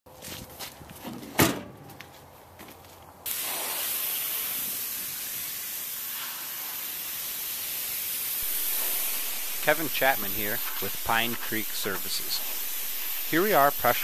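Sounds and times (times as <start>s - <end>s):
pressure washer spraying wood: 3.3s - 14.0s.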